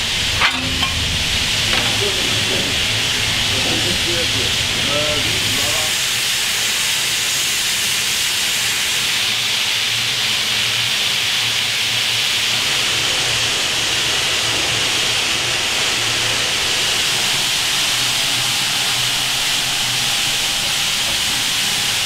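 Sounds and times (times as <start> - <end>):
steam hissing from locomotive: 0.0 - 22.0.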